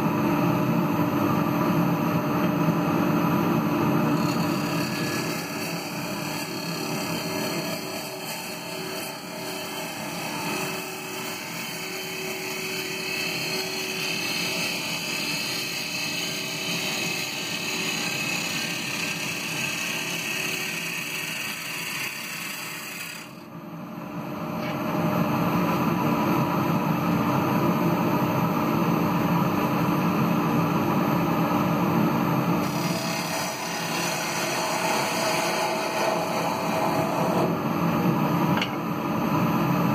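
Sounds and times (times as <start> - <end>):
wood lathe gouge cutting: 4.2 - 23.4, 32.6 - 37.5.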